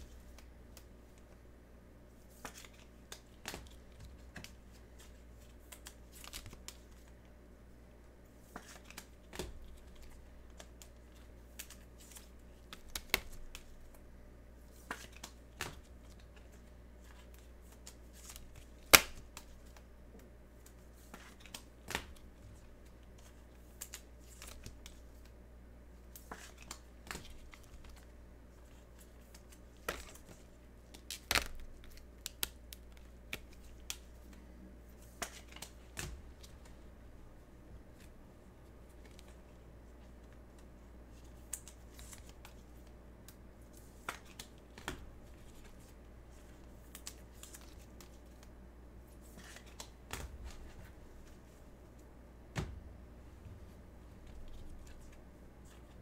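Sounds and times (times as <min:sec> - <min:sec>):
cards and wrappers clicking and crinkling: 0:02.4 - 0:07.1, 0:26.2 - 0:34.4, 0:40.2 - 0:48.5.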